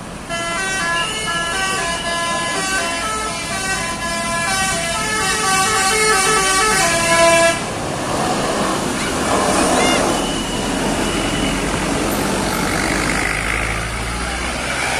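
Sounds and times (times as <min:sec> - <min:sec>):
bus horn playing a tune: 0:00.2 - 0:07.7.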